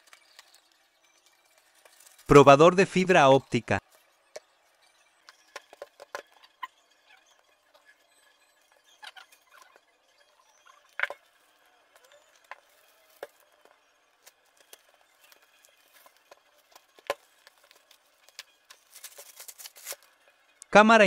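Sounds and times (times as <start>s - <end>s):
plastic wrap crackling: 0.0s - 2.4s, 11.4s - 20.2s.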